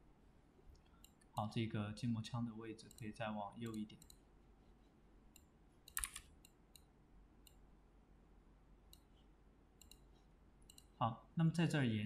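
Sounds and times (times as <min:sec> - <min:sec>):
faint computer mouse clicks: 0:00.7 - 0:01.3, 0:02.8 - 0:04.2, 0:05.3 - 0:07.6, 0:08.9 - 0:11.0.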